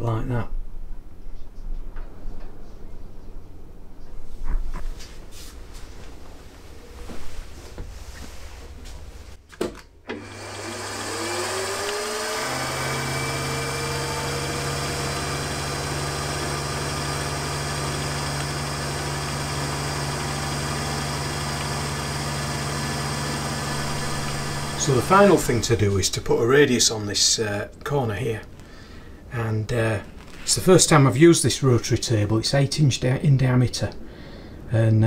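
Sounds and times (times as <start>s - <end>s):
milling machine spindle whine: 10.1s - 26.2s.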